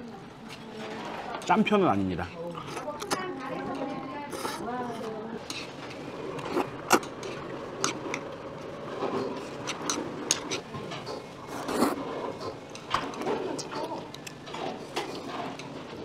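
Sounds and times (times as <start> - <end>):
noodles slurped and chewed: 4.2 - 8.3, 8.9 - 15.7
chopsticks clicking against bowls: 9.6 - 11.2, 12.8 - 14.4.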